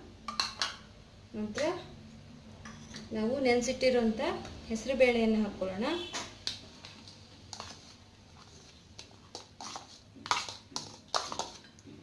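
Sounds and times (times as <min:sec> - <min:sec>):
spoon scraping plastic bowl: 0:06.8 - 0:11.7.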